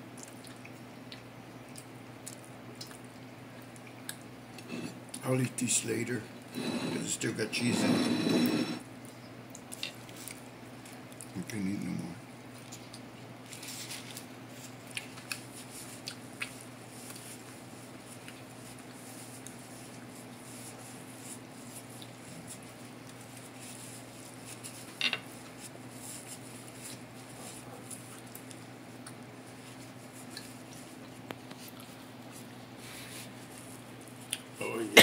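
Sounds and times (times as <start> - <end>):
steady low hum: 0.0 - 35.0
person chewing food: 0.1 - 5.2, 12.5 - 13.1, 14.1 - 20.3, 21.4 - 23.5, 26.7 - 32.4.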